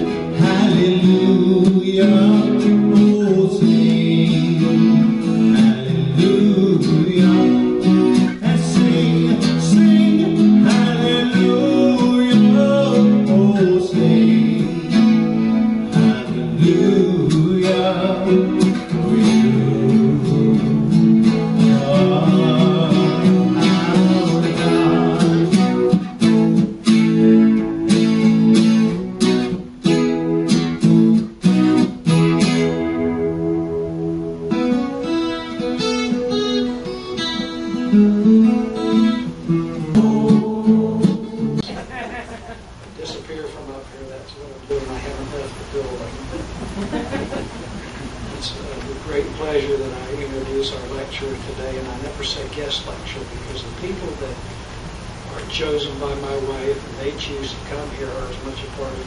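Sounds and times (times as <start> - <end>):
man singing: 0.0 - 26.0, 39.7 - 41.8
acoustic guitar strumming: 0.0 - 59.0.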